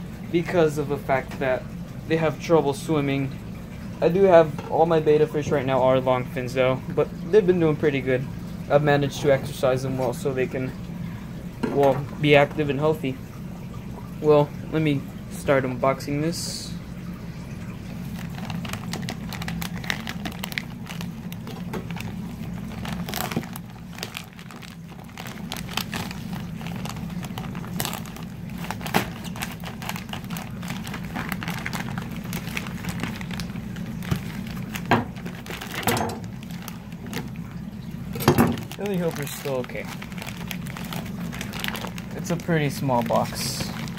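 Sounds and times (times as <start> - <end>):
steady low hum: 0.0 - 43.9
plastic mailer bag crinkling and tearing: 18.0 - 43.9.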